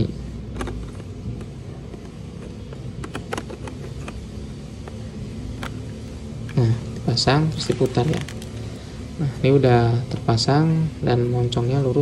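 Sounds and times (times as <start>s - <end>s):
plastic clicks: 0.5s - 4.2s.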